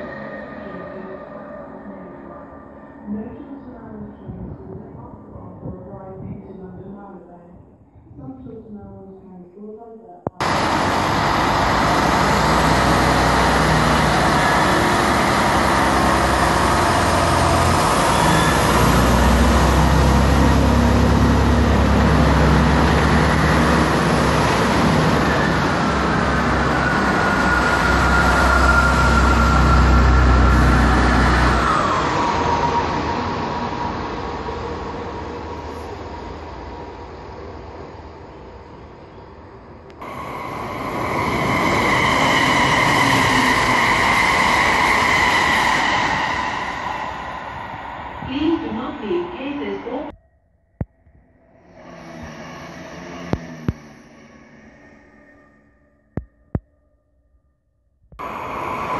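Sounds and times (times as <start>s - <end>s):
wheel and rail noise: 10.4s - 48.8s
diesel train engine rumble: 10.4s - 50.1s, 58.2s - 58.9s
train whine dropping in pitch: 10.4s - 56.6s.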